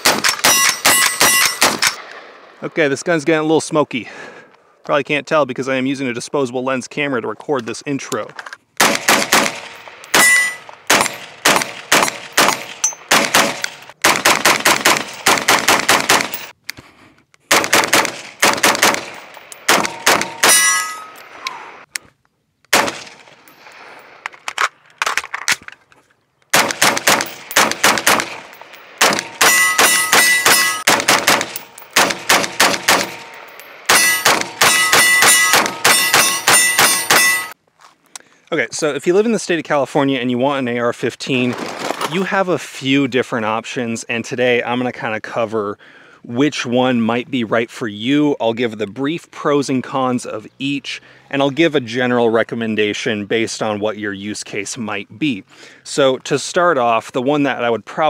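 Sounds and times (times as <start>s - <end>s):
bullets ringing steel targets: 0.0s - 2.1s, 9.3s - 13.9s, 16.1s - 16.6s, 18.7s - 21.5s, 26.6s - 37.6s
rifle shots: 0.0s - 2.6s, 8.8s - 16.5s, 17.5s - 21.0s, 22.7s - 24.2s, 26.5s - 37.6s.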